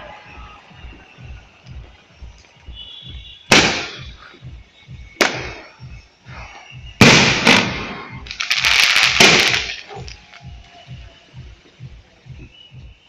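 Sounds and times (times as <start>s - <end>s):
fireworks bangs: 2.7s - 4.3s, 5.1s - 5.9s, 7.0s - 10.6s
fireworks crackle: 3.5s - 4.3s, 7.0s - 11.4s.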